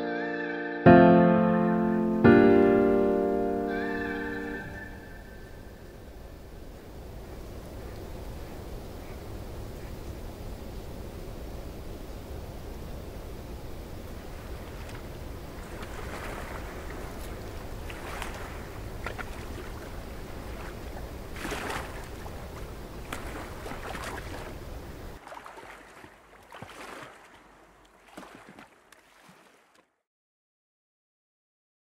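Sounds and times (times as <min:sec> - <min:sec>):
low wind rumble: 0:02.7 - 0:25.2
lake water splashing: 0:13.8 - 0:30.0.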